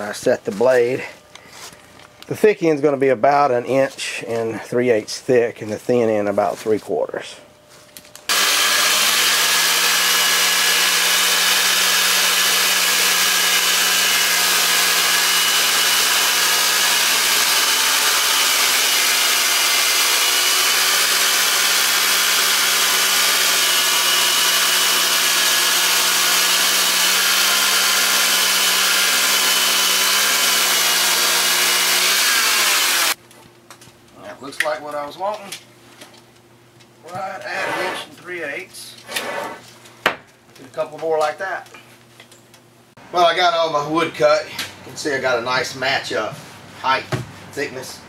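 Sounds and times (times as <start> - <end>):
sawmill engine drone: 8.3 - 33.2.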